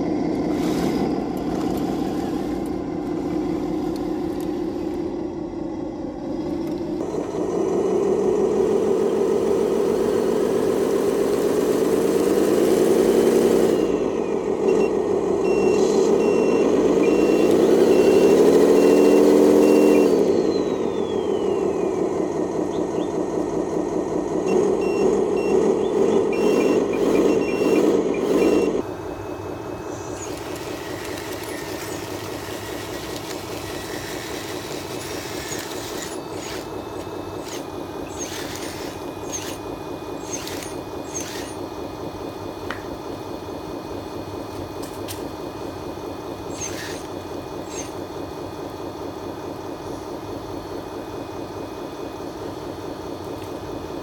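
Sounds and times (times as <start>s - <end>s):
simulated diesel engine: 0.0s - 54.0s
sharp mechanical clicks: 15.8s - 20.3s, 30.1s - 41.7s.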